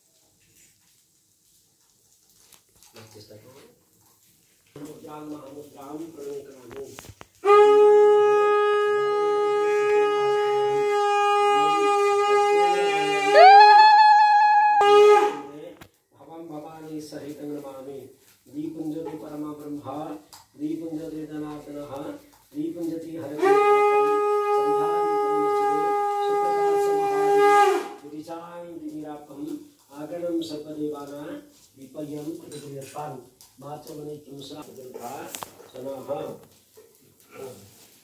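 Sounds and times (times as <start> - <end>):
conch shell blown: 7.4 - 15.6, 23.3 - 28.1.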